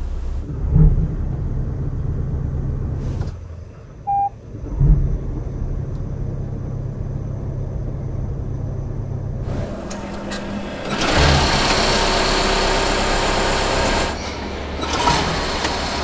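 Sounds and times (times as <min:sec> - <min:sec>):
car engine running: 0:00.0 - 0:16.0
engine starting with a thump: 0:09.5 - 0:13.1, 0:13.9 - 0:16.0.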